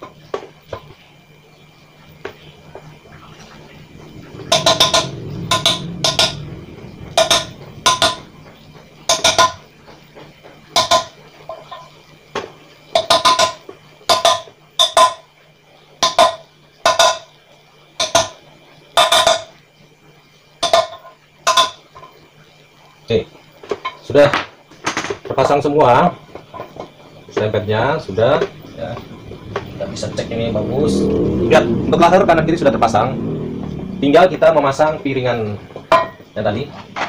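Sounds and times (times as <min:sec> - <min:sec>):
hammer knocking on metal rim: 0:04.5 - 0:06.5, 0:07.1 - 0:08.3.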